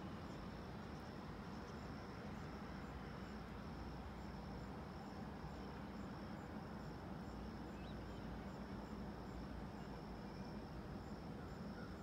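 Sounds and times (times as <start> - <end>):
faint insect chirps: 0.0 - 12.0
insects trilling: 0.1 - 12.0.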